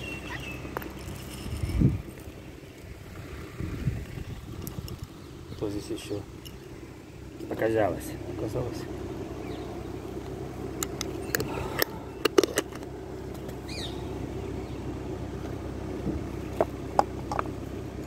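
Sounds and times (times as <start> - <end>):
low mechanical rumble: 0.0 - 18.0
high chirp: 13.6 - 14.9.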